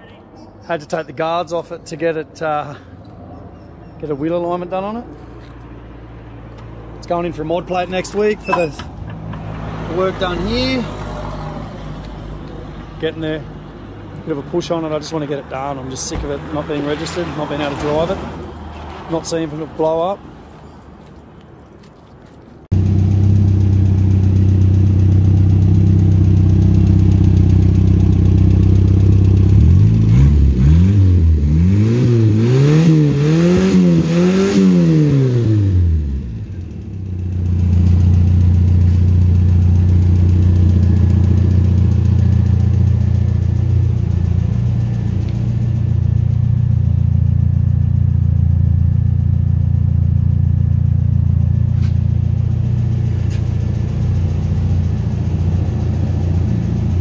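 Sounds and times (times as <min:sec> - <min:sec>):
car engine idling and revving: 0:01.7 - 0:19.8, 0:22.5 - 0:57.0.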